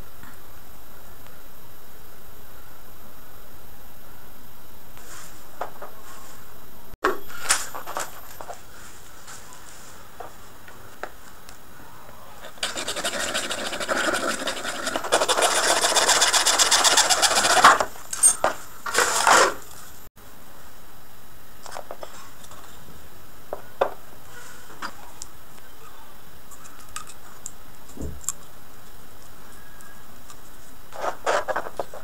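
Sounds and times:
hacksaw cutting plastic pipe: 0:12.6 - 0:17.9
pipe scraping on sandpaper: 0:12.6 - 0:17.9.

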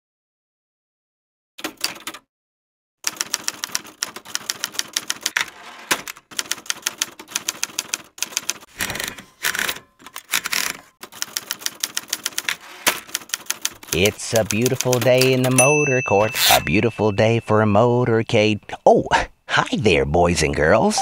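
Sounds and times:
typewriter keys clacking: 0:01.6 - 0:02.2, 0:03.1 - 0:16.7.

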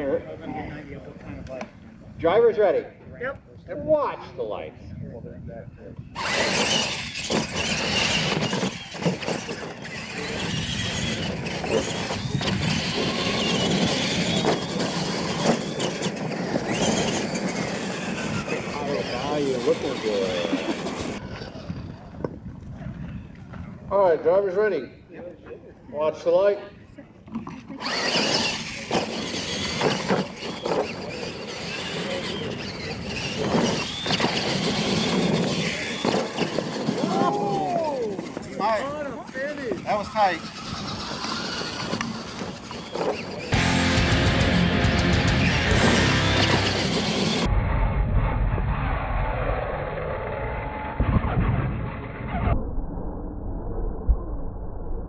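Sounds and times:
high-pitched motor whine: 0:06.0 - 0:22.2, 0:27.7 - 0:54.2
trucks knocking over ramps: 0:06.2 - 0:18.8, 0:27.8 - 0:38.6, 0:40.4 - 0:48.3
tyres scrabbling on dirt: 0:06.2 - 0:21.2, 0:27.5 - 0:47.5.

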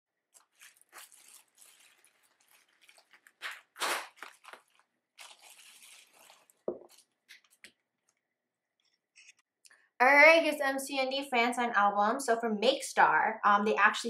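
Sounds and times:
bubble wrap crinkling: 0:00.2 - 0:07.8.

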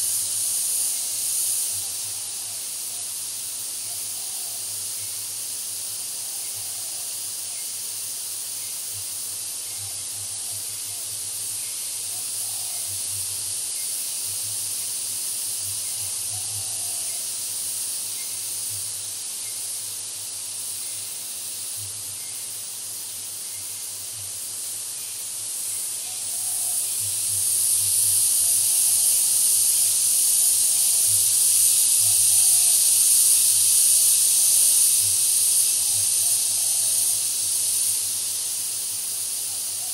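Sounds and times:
insect chorus high-pitched hiss: 0:00.0 - 0:39.9.

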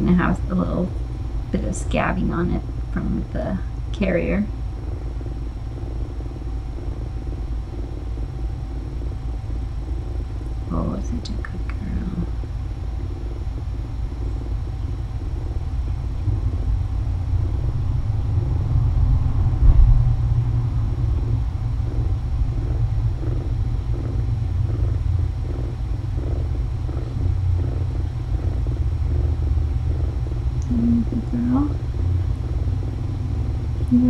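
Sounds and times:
cat purring: 0:00.0 - 0:34.0.

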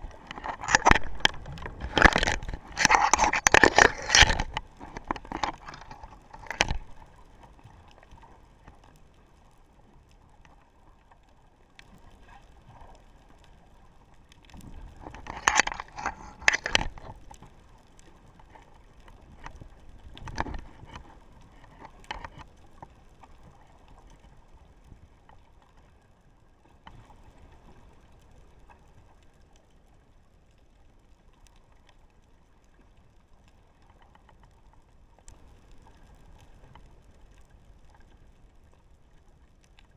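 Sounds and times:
muffled underwater knocks and rattles: 0:00.0 - 0:07.2, 0:14.8 - 0:17.4, 0:19.2 - 0:22.9.

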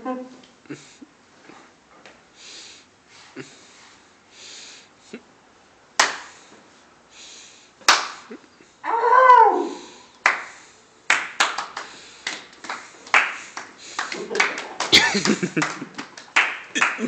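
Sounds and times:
puffs of breath: 0:02.3 - 0:05.2, 0:06.2 - 0:08.8, 0:09.7 - 0:10.9, 0:11.7 - 0:14.3
sharp smacks: 0:06.0 - 0:06.4, 0:07.8 - 0:08.3
short vocal cry: 0:08.3 - 0:10.1.

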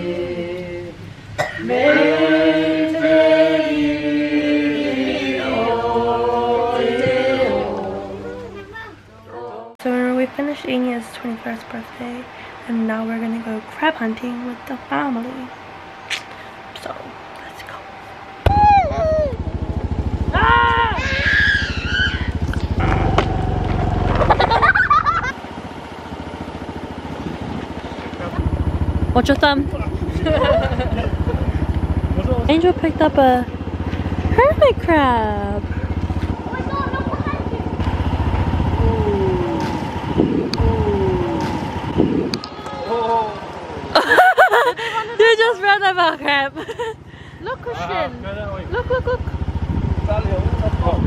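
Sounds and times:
vehicle engine idling: 0:00.0 - 0:07.0, 0:09.9 - 0:51.0
unaccompanied chanted singing: 0:00.0 - 0:16.1
voices and exclamations: 0:18.5 - 0:22.4, 0:32.5 - 0:37.8, 0:38.7 - 0:49.3.

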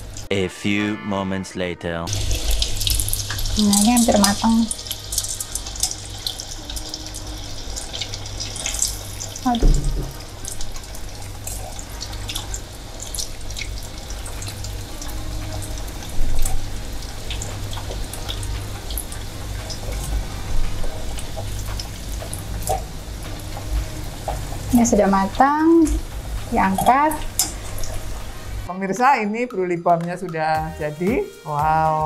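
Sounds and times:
hot oil sizzling and crackling: 0:00.0 - 0:00.3, 0:02.1 - 0:28.7
metal tongs turning food: 0:20.8 - 0:28.1.

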